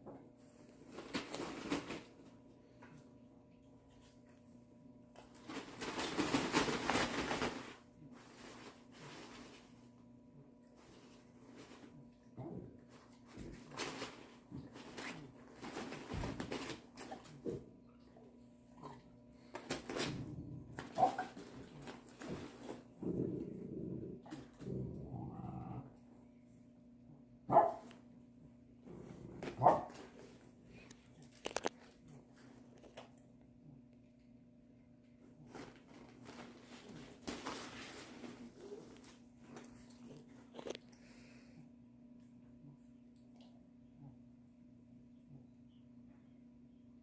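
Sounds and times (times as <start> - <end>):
rustling of nylon play tunnel: 5.2 - 9.9, 35.3 - 39.9.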